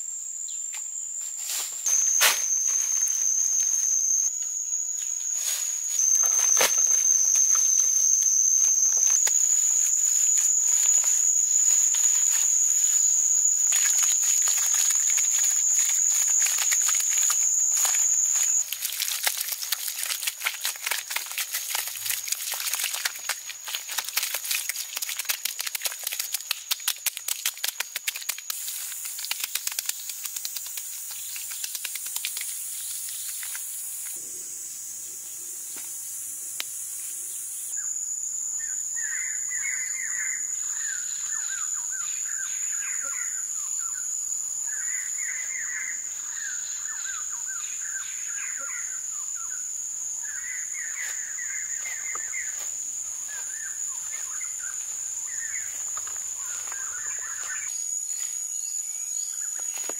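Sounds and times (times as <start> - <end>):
insect drone: 0.0 - 59.9
wet mud squelching by hand: 13.8 - 30.8.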